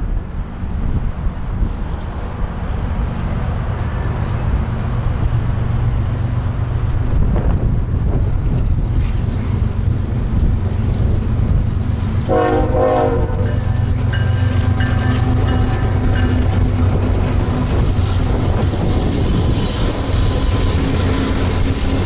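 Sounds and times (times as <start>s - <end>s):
diesel locomotive engine rumble: 0.0s - 22.0s
wind buffeting microphone: 0.0s - 22.0s
locomotive horn: 12.2s - 16.6s.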